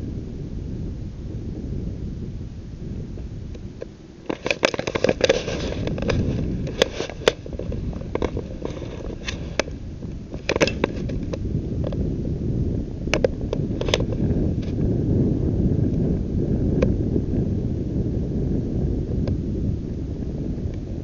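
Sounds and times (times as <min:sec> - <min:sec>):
wind rumble on microphone: 0:00.0 - 0:21.0
sharp crackles and clicks: 0:03.0 - 0:12.1, 0:13.0 - 0:14.9.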